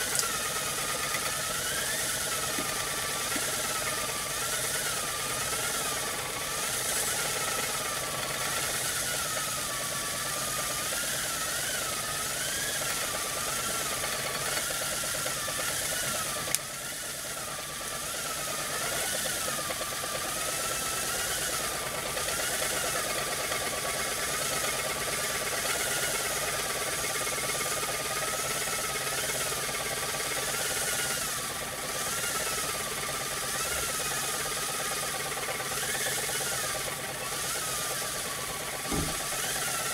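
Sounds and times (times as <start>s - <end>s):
steam engine hissing and whistling: 0.0s - 39.9s
sharp click: 38.9s - 39.4s.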